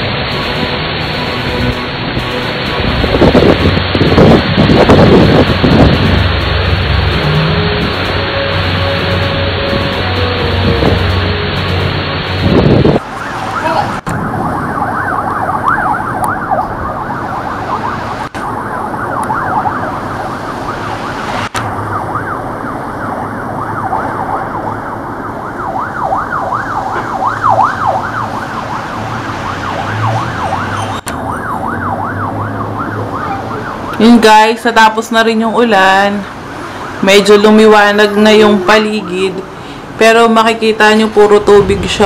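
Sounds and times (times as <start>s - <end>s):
low rumble: 0.0s - 17.6s
sirens wailing: 0.0s - 42.0s.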